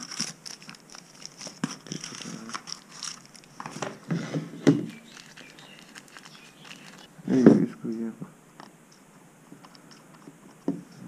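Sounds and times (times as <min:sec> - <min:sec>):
plastic packaging clicks and rustles: 0:00.0 - 0:07.1.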